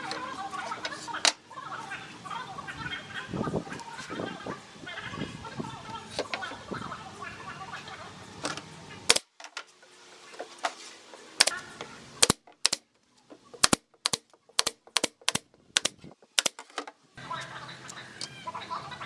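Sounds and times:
nail gun firing into wood: 9.1s - 9.3s, 12.2s - 12.8s, 13.6s - 16.6s.

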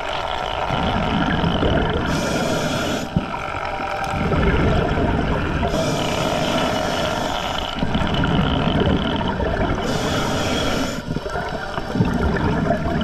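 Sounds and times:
exhaled bubbles rumbling: 0.0s - 13.0s
diver inhaling through regulator: 0.8s - 3.5s, 5.6s - 11.3s.

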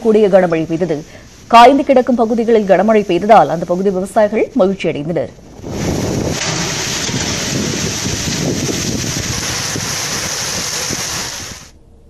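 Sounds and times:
wind gusts buffeting microphone: 5.3s - 11.7s
heavy rain pouring: 5.4s - 11.7s.

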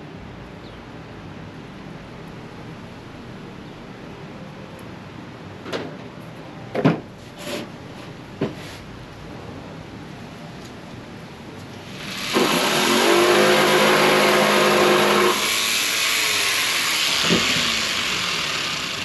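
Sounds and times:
jigsaw cutting hardboard: 11.9s - 19.0s.

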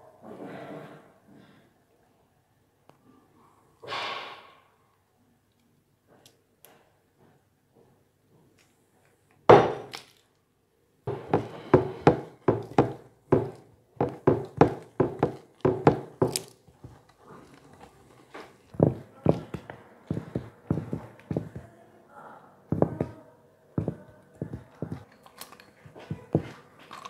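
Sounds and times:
wooden spatula knocking in glass dish: 11.1s - 16.4s, 22.7s - 23.2s.

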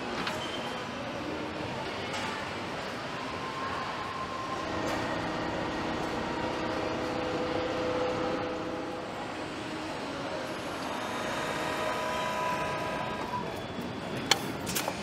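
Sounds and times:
assembly line machinery noise: 2.1s - 15.0s
faint hum: 3.0s - 14.3s.

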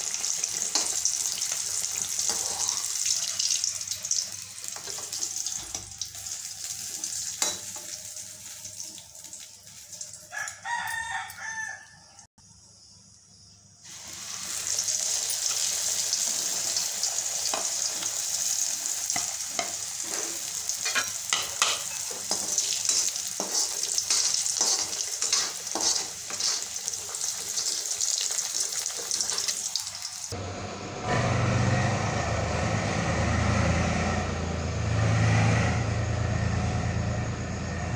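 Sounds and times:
frying in hot oil: 0.0s - 11.7s, 13.8s - 37.9s
rooster crowing: 10.1s - 12.3s.

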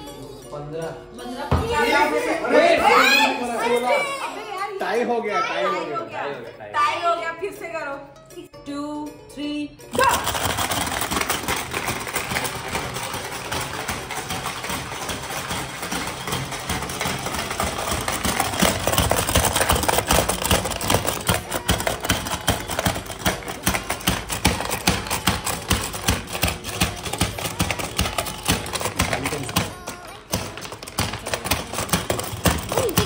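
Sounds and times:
plastic levers being hammered: 10.0s - 33.0s
plastic marbles rattling: 10.0s - 33.0s.

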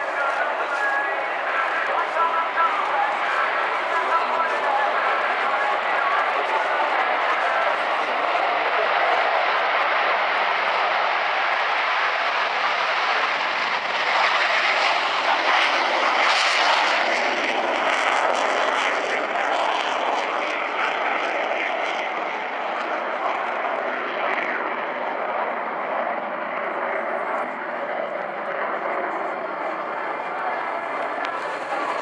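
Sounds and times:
jet engine roar: 0.0s - 32.0s.

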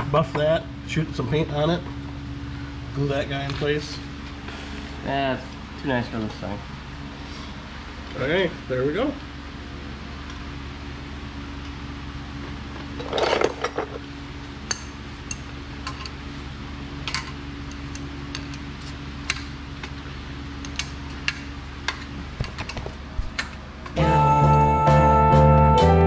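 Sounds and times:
steady low hum: 0.0s - 26.0s
metal parts clattering: 13.0s - 13.9s.

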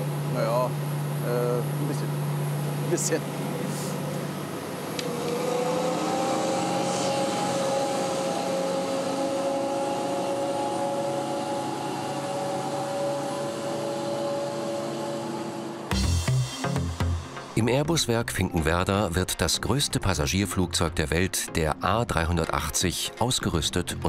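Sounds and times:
machine whine at two pitches: 3.9s - 17.2s.

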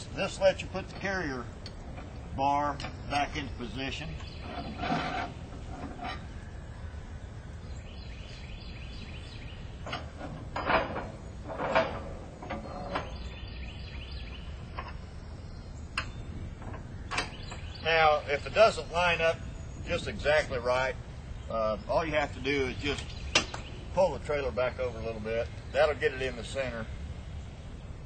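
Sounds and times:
outdoor background noise: 0.0s - 28.0s
metal frame clanks and knocks: 4.2s - 6.3s, 9.8s - 13.4s.

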